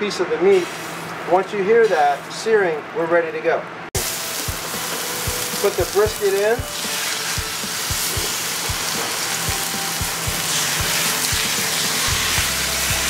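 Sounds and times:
background music with low beat: 0:04.0 - 0:13.0
meat sizzling in hot oil: 0:04.0 - 0:13.0.

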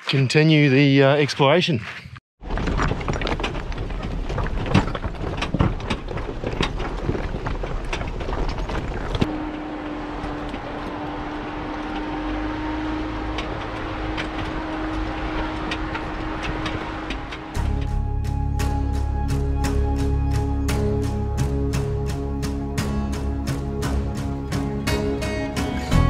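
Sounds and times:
knocks and rattles: 0:02.4 - 0:09.3, 0:13.1 - 0:17.9
engine and tyre rumble: 0:02.4 - 0:26.0.

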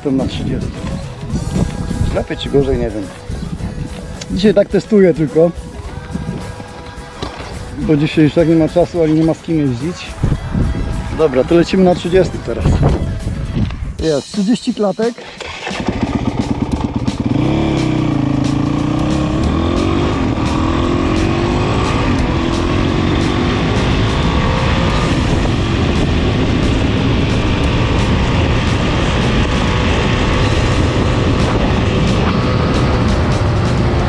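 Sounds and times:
motorbike engine pulling away: 0:15.2 - 0:34.0.

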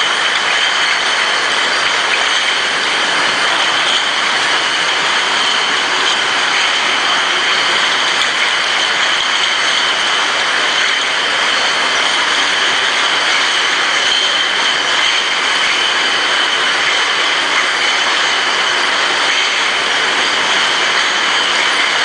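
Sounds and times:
bottle washing machinery din: 0:00.0 - 0:22.0.

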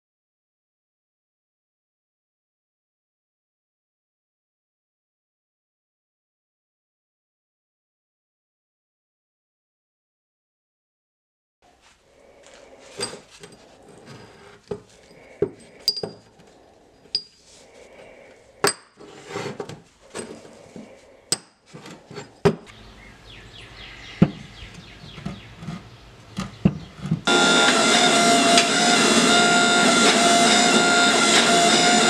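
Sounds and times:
metal pieces clinking: 0:15.6 - 0:16.2.

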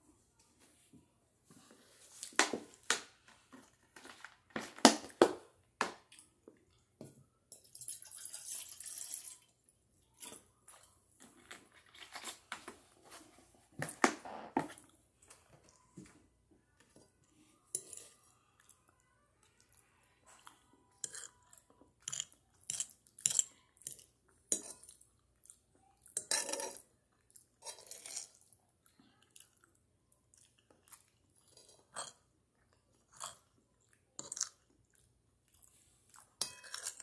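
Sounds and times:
chewing: 0:16.8 - 0:37.0.

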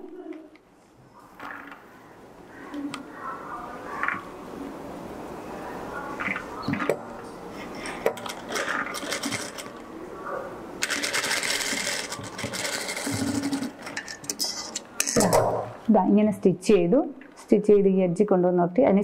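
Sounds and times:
sewing machine stitching: 0:10.8 - 0:13.9.

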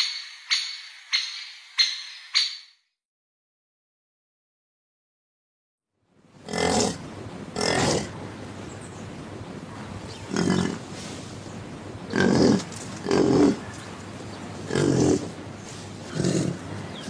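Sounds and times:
steady hiss: 0:06.1 - 0:17.0
animal calling: 0:10.0 - 0:11.0, 0:14.5 - 0:17.0.

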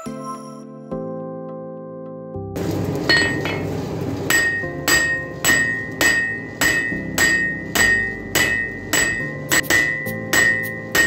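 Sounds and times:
hammer striking steel on anvil: 0:03.1 - 0:03.7, 0:04.3 - 0:11.0.

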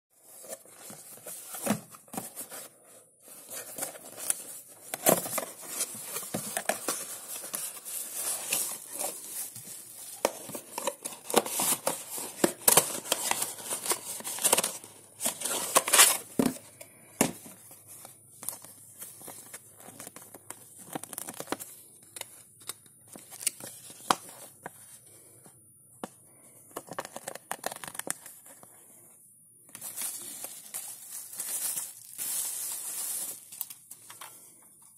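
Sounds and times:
bubble wrap crinkling: 0:29.8 - 0:33.9.

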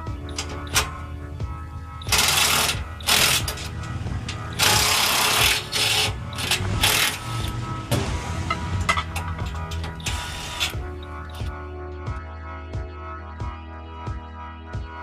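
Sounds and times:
background music: 0:00.0 - 0:15.0
power tool driving bolts: 0:02.0 - 0:11.5.

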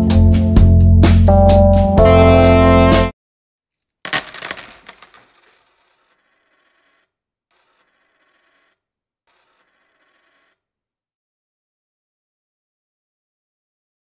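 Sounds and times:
metallic jingling clatter: 0:04.0 - 0:06.8.

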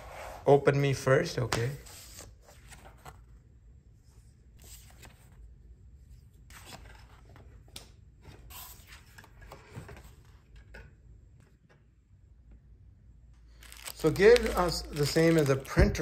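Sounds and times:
paper cards rustling and sliding: 0:01.5 - 0:03.4, 0:04.2 - 0:05.5, 0:06.2 - 0:10.8, 0:13.5 - 0:16.0.

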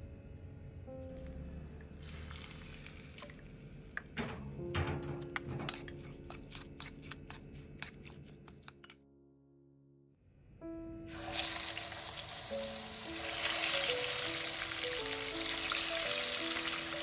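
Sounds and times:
background music melody: 0:00.0 - 0:17.0
chicken frying in oil: 0:11.1 - 0:17.0.

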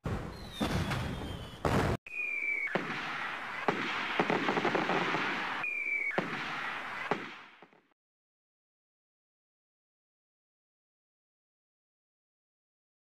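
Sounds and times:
firework falling whistle: 0:00.3 - 0:07.8
firework crackles and pops: 0:02.5 - 0:07.9.

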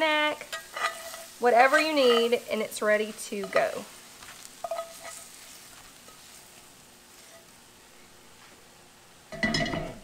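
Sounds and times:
spatula scraping skillet: 0:00.0 - 0:07.6
oil sizzling: 0:00.0 - 0:10.0.

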